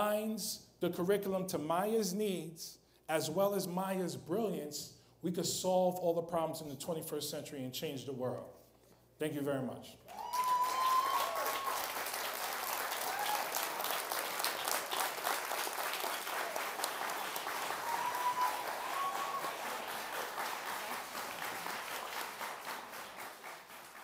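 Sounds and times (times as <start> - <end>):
cheers: 10.1 - 23.6
audience applauding: 10.1 - 24.0.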